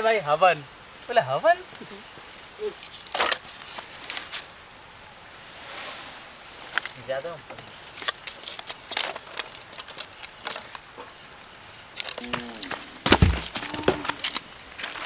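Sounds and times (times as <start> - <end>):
campfire crackling: 0.7 - 15.0
heavy thumps: 12.2 - 14.3.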